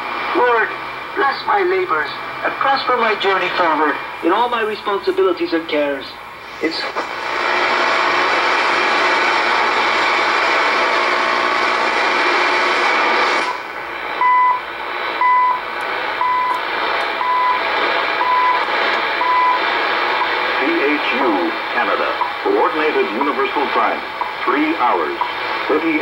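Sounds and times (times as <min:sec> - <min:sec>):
shortwave radio static: 0:00.0 - 0:26.0.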